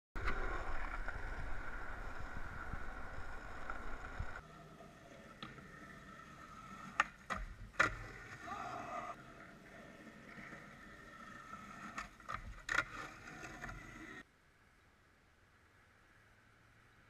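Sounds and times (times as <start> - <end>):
skateboard clack: 0.2 - 8.5
skateboard wheels rolling on asphalt: 0.2 - 14.3.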